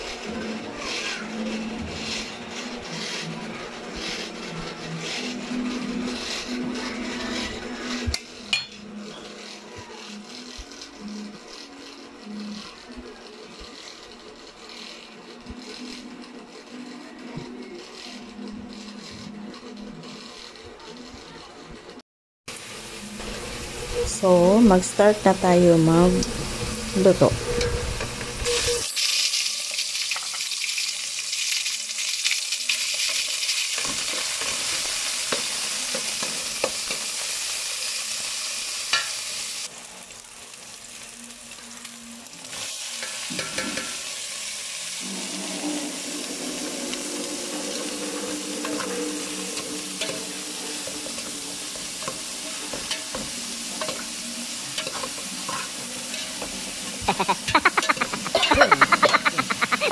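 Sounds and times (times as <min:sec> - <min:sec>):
vegetables frying and sizzling: 0:00.0 - 0:08.6, 0:22.5 - 0:59.9
garlic and onion sizzling in oil: 0:00.0 - 0:21.3, 0:22.5 - 0:59.9.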